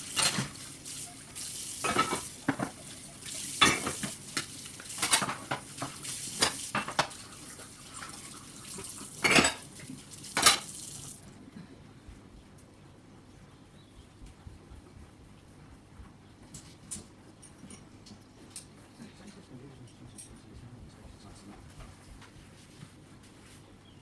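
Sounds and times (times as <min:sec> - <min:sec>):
pans and utensils clinking: 0:00.0 - 0:01.2, 0:01.8 - 0:07.3, 0:07.9 - 0:09.7, 0:10.3 - 0:10.7.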